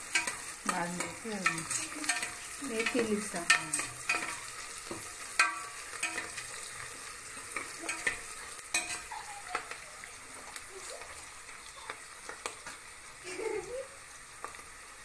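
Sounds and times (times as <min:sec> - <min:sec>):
metal spoon scraping a pot: 0:00.0 - 0:09.6
onions sizzling in hot oil: 0:00.0 - 0:15.0.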